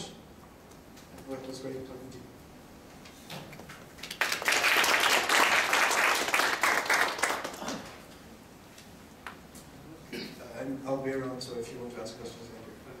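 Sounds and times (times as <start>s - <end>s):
audience applauding: 4.0s - 8.0s.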